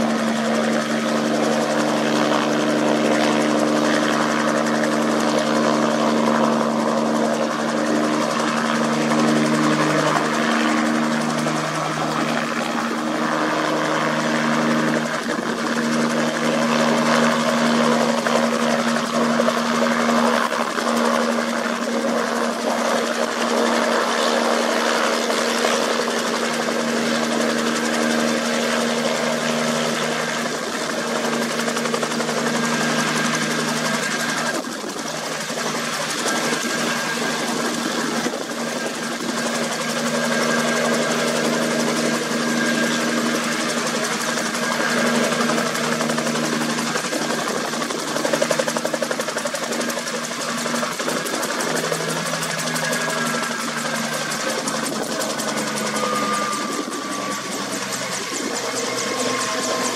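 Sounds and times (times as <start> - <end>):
helicopter hovering: 0.0 - 59.9.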